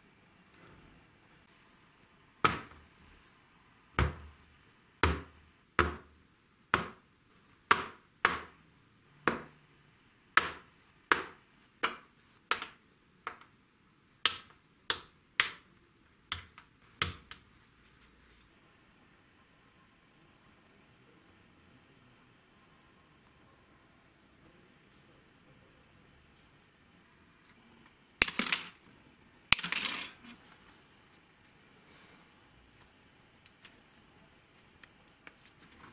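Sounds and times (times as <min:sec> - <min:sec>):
metal parts knocking on wooden bench: 0:29.5 - 0:30.2.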